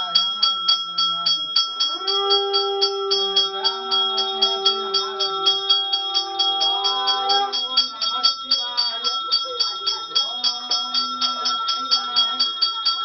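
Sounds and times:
temple bell ringing rapidly: 0:00.0 - 0:13.0
voice chanting a long note: 0:01.8 - 0:07.9.

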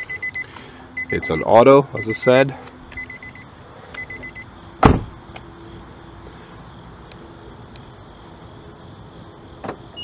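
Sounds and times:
insects chirring: 0:00.0 - 0:10.0
car door thump: 0:04.8 - 0:05.2.

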